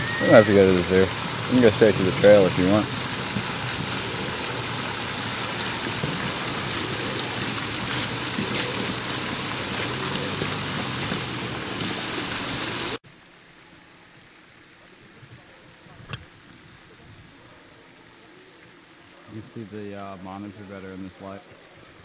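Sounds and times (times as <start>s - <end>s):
rushing outdoor noise: 0.0s - 22.0s
quiet hiss: 12.8s - 22.0s.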